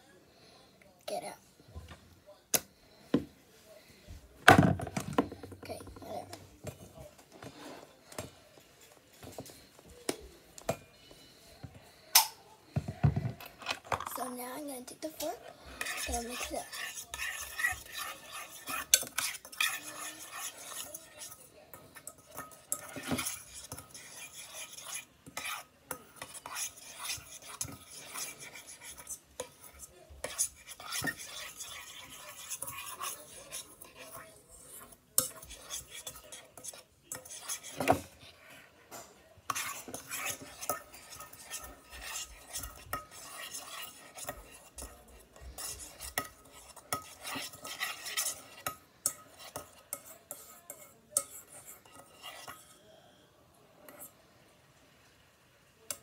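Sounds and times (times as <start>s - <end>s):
fork clinking and scraping metal pot: 15.1s - 52.8s.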